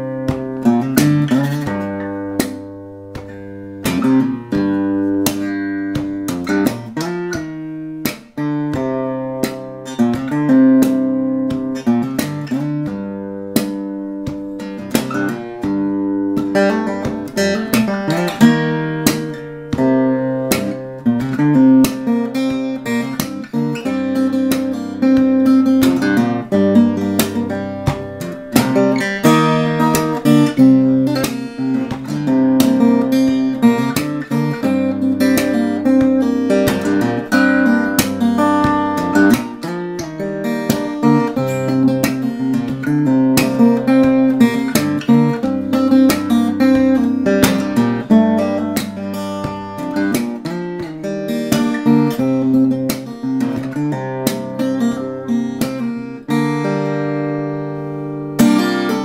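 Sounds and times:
acoustic guitar playing: 0.0 - 59.0.

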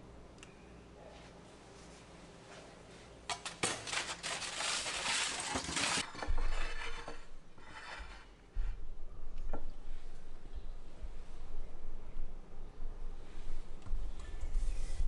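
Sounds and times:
metal spatula scraping baking sheet: 3.3 - 8.4.

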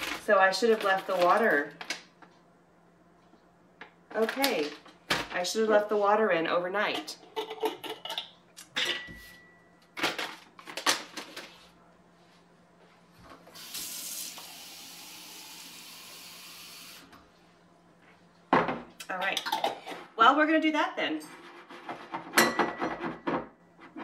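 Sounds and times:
kitchen tap running: 13.5 - 17.1.

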